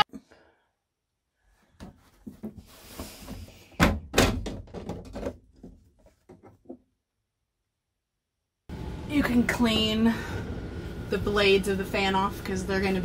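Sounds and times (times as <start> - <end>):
plastic cover thunks: 3.3 - 5.9.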